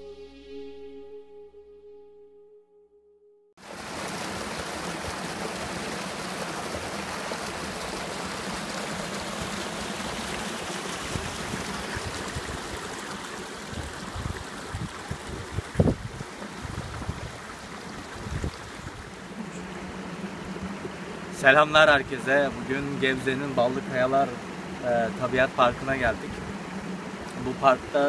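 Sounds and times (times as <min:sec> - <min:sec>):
soft music: 0:00.0 - 0:03.5
stream rushing over rocks: 0:03.6 - 0:28.0.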